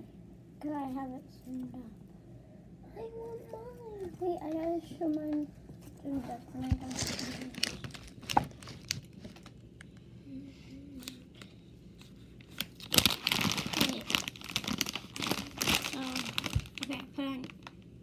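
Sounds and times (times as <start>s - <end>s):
slime crackling and popping: 12.4s - 17.8s.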